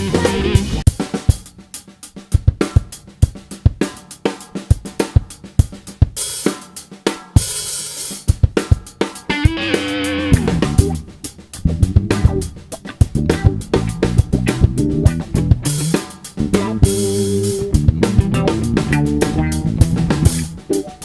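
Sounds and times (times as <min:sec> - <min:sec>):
electric guitar notes: 0:00.0 - 0:00.8, 0:09.3 - 0:11.1
drum kit playing: 0:00.0 - 0:21.0.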